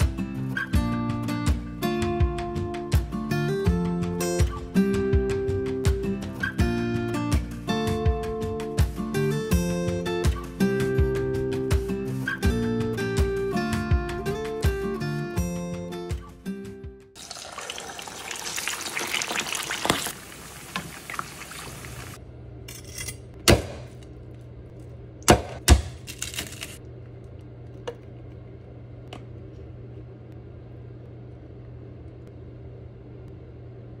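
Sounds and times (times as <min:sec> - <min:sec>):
guitar music: 0:00.0 - 0:17.0
meat sizzling in frying oil: 0:17.2 - 0:22.2
knife cutting crackling skin: 0:25.3 - 0:26.8.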